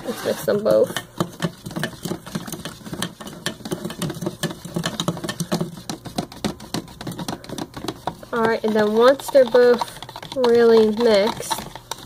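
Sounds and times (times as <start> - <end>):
spoons clinking against bowls: 7.2 - 12.0.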